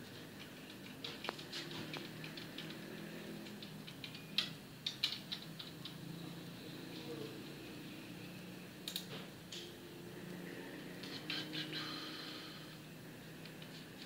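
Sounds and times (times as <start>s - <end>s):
keyboard key clicks: 3.4s - 6.0s.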